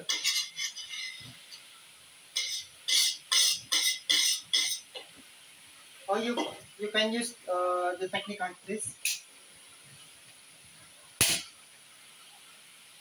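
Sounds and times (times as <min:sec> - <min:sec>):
utensil scraping frying pan: 0:00.0 - 0:01.6, 0:02.4 - 0:05.0.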